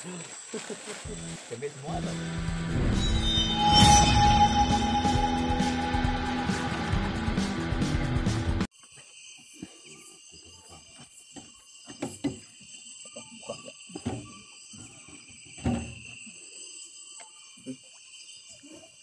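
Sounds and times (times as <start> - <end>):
intro music: 1.9 - 8.7
night insects chorus: 8.8 - 19.0.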